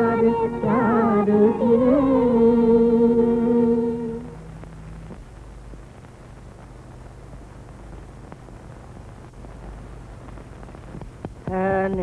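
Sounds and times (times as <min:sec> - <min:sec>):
soundtrack hiss and hum: 0:00.0 - 0:12.0
faint crackles: 0:04.4 - 0:12.0.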